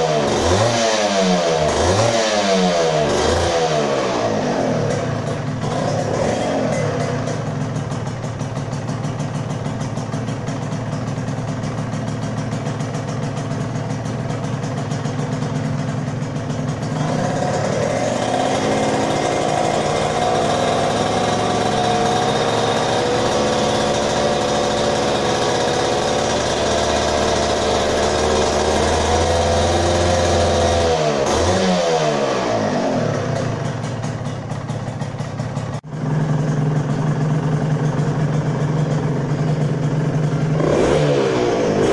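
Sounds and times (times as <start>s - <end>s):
two-stroke engine idling and revving: 0.0s - 41.9s.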